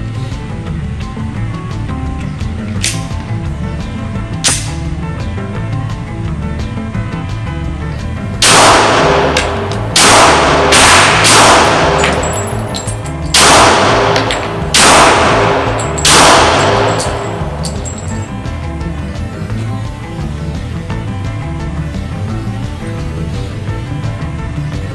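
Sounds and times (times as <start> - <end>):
pistol shots echoing indoors: 8.4 - 18.2.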